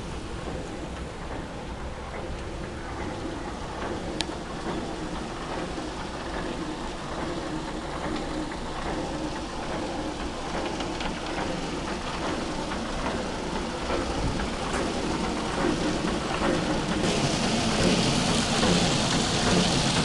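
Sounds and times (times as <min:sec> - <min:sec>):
water splashing and rushing: 0:13.6 - 0:20.0.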